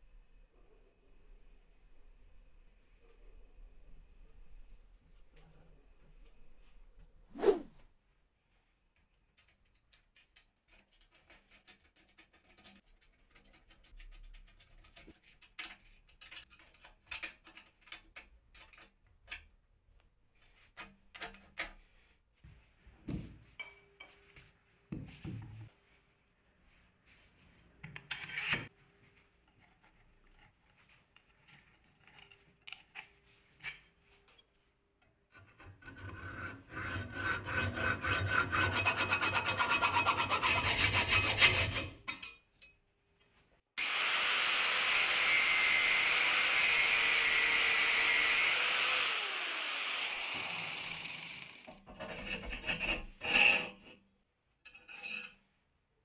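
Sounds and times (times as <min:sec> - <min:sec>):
hacksaw cutting metal: 0:35.4 - 0:42.2, 0:43.8 - 0:53.8
power tool running: 0:43.8 - 0:51.7.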